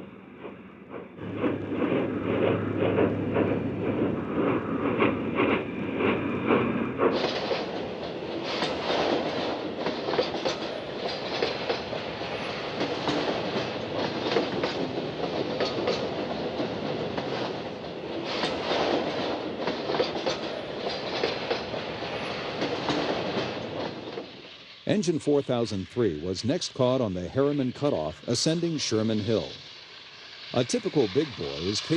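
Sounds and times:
train wheels clattering over rail joints: 0.4s - 24.6s.

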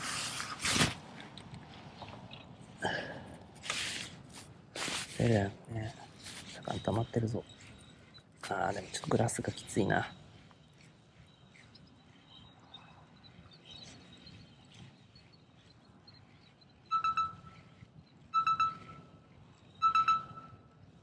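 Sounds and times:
faint bird chirps: 5.2s - 21.0s
loud steady beeping tone: 6.0s - 20.9s.

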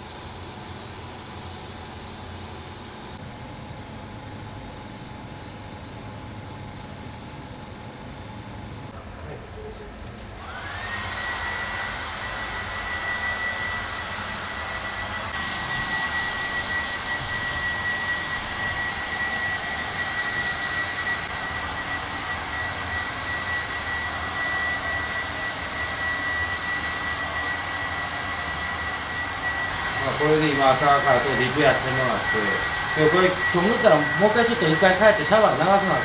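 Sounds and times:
electric blower motor whining: 10.4s - 36.0s.

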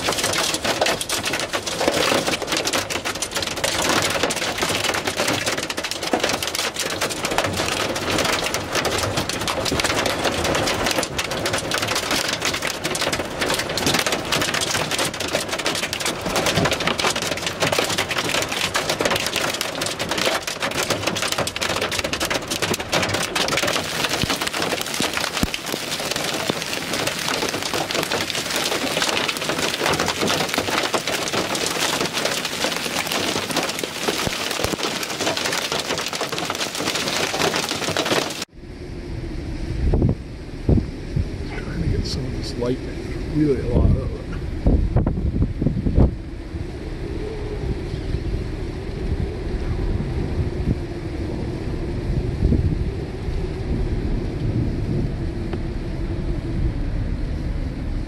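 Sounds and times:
rain and hail on car roof: 0.0s - 38.5s.

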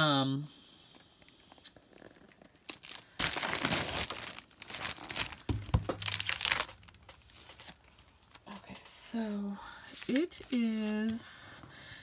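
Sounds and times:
plastic bag crinkling: 1.4s - 9.0s, 9.8s - 11.2s.

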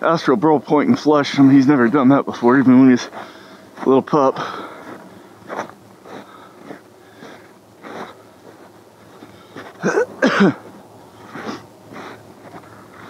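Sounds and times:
footsteps crunching in snow: 0.6s - 13.0s
man sneezing: 9.8s - 10.7s.

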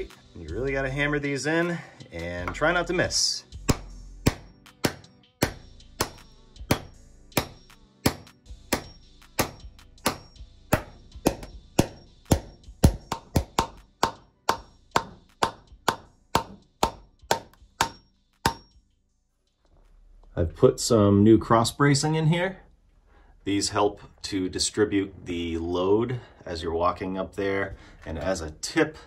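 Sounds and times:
hammer striking nails: 3.7s - 18.8s.

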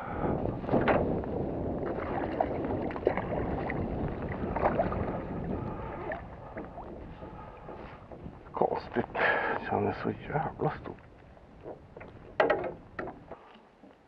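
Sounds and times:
fish thrashing and splashing water: 1.7s - 8.6s.

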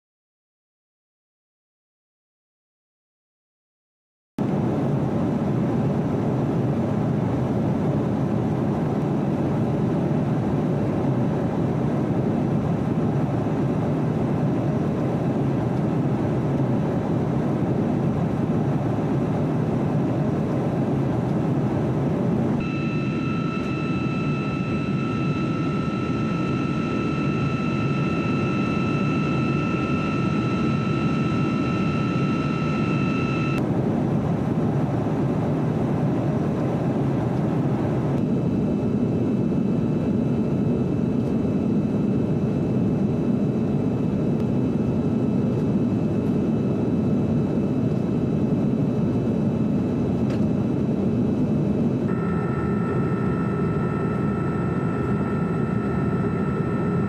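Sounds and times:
aircraft cabin engine roar: 4.4s - 57.0s
high multi-tone whine: 22.6s - 33.7s, 38.2s - 57.0s.

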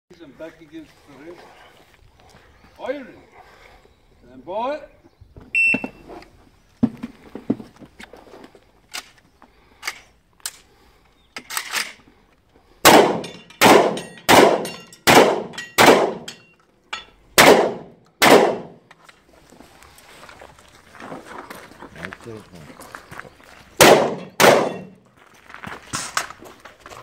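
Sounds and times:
shotgun shots with echo: 12.8s - 16.3s, 17.4s - 18.8s, 23.8s - 25.0s.

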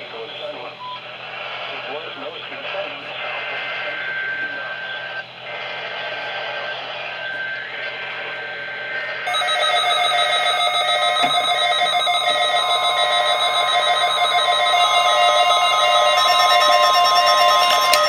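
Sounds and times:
radio hiss: 0.0s - 9.3s
electronic alert beeps: 9.3s - 18.0s.

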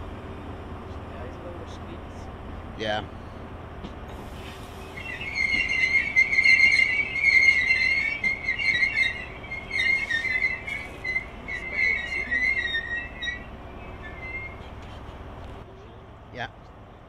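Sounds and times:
train wheels squealing on rails: 4.1s - 15.6s.

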